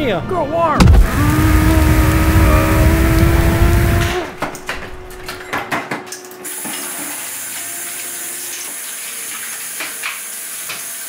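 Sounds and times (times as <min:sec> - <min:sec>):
faucet running into a sink: 0:06.4 - 0:11.0.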